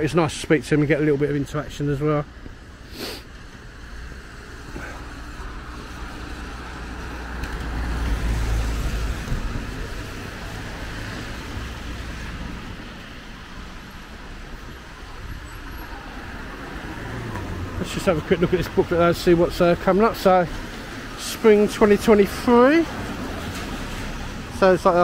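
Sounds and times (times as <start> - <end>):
car engines rumbling: 0.0 - 25.0
tyre hiss on wet road: 2.6 - 18.0, 22.1 - 24.5.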